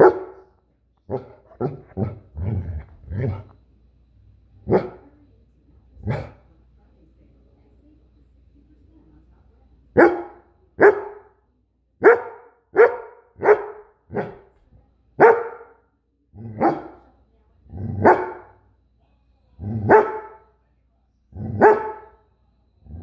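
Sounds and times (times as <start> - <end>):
dog barking: 0.0 - 0.5, 1.1 - 2.2, 4.7 - 5.0, 6.0 - 6.4, 10.0 - 11.3, 12.0 - 14.5, 15.2 - 15.8, 16.5 - 17.0, 18.0 - 18.5, 19.7 - 20.4, 21.4 - 22.2.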